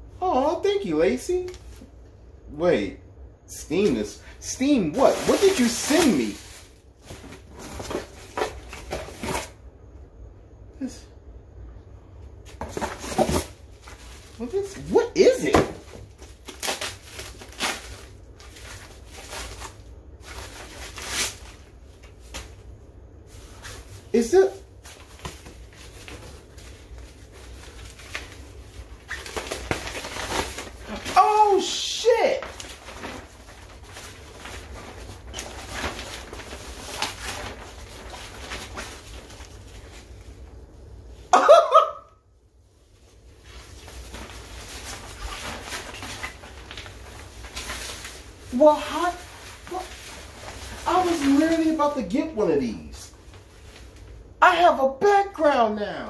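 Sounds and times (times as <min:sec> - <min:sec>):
plastic wrapping rustling: 0:03.8 - 0:09.6, 0:12.3 - 0:41.6, 0:42.8 - 0:54.2
person exclaiming excitedly: 0:30.9 - 0:32.6.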